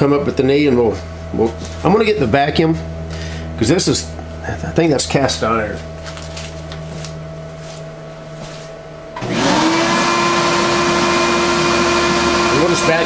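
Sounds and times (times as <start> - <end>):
milling machine humming: 0.0 - 13.0
vacuum cleaner motor whine: 9.1 - 13.0.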